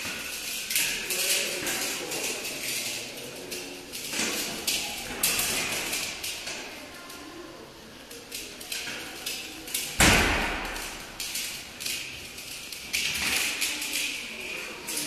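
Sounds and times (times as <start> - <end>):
heavy thud: 10.0 - 11.0.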